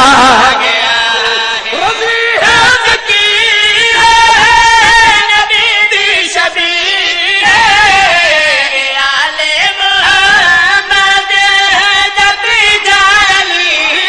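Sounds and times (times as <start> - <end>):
man singing ornamented held notes: 0.0 - 14.0.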